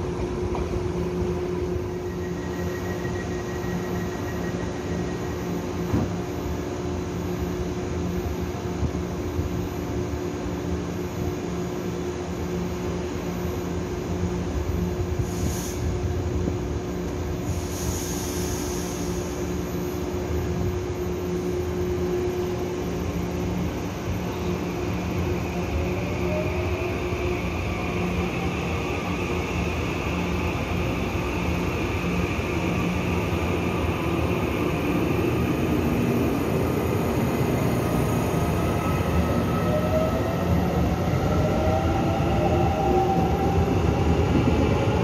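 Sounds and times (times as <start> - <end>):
train equipment humming: 0.0 - 45.0
air hisses: 15.2 - 15.9, 17.5 - 19.4.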